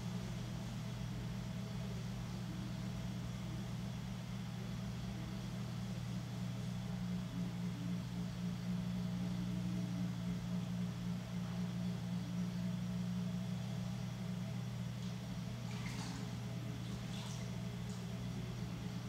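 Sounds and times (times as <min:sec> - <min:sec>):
potter's wheel motor hum: 0:00.0 - 0:19.0
light water splashing: 0:14.9 - 0:18.9.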